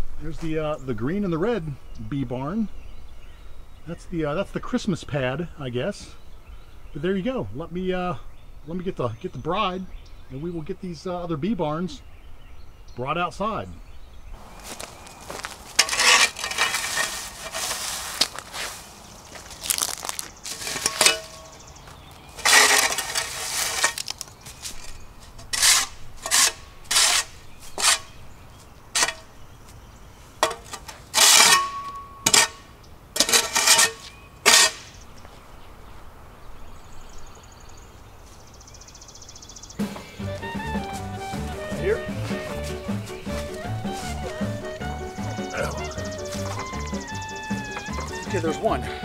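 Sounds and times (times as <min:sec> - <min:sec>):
shovel scraping concrete: 0:14.6 - 0:18.9, 0:19.7 - 0:21.6, 0:22.3 - 0:28.2, 0:29.0 - 0:29.3, 0:30.4 - 0:35.0.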